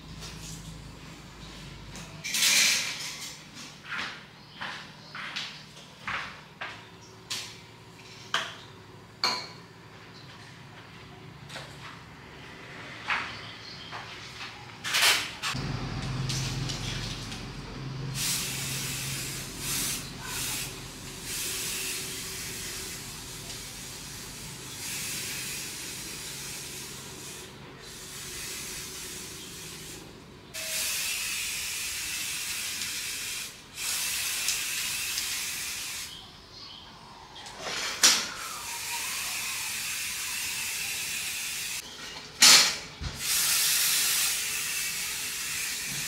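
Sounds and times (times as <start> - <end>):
pressurised spray hissing: 18.1 - 36.2, 43.2 - 46.0.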